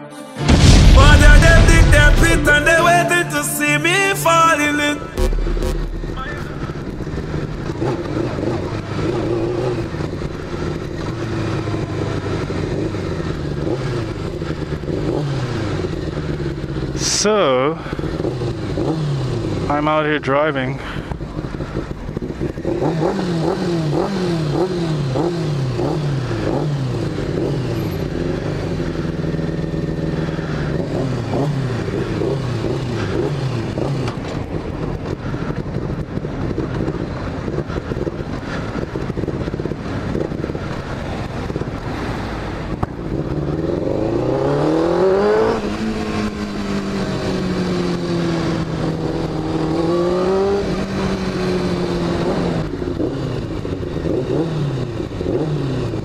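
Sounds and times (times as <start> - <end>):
motorcycle engine revving: 5.2 - 20.2, 20.8 - 56.0.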